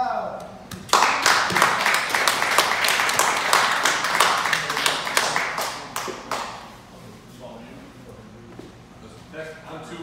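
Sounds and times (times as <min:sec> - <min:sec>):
group clapping in applause: 0:00.7 - 0:06.7.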